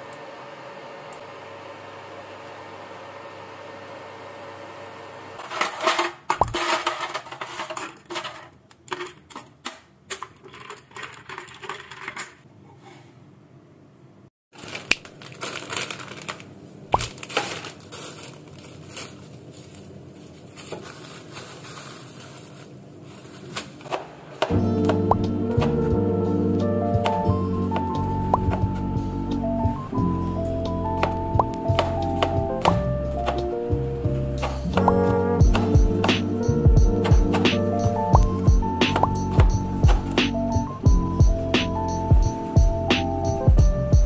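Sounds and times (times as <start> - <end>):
induction cooktop hum: 0.0 - 14.1
plastic grocery bags rustling: 5.4 - 9.6, 14.5 - 24.5.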